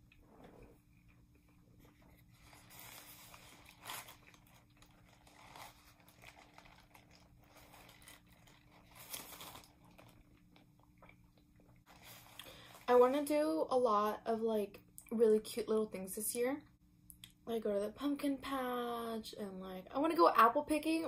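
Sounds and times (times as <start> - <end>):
paper wrapper crinkling: 1.9 - 10.7, 11.9 - 13.2.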